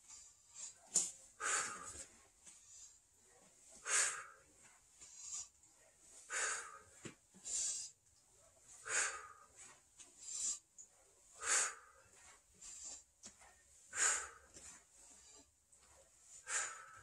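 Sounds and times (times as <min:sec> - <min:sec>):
man breathing hard: 0:01.4 - 0:02.2, 0:03.8 - 0:04.5, 0:06.2 - 0:08.0, 0:08.8 - 0:10.6, 0:11.3 - 0:13.0, 0:13.8 - 0:15.5, 0:16.4 - 0:17.0.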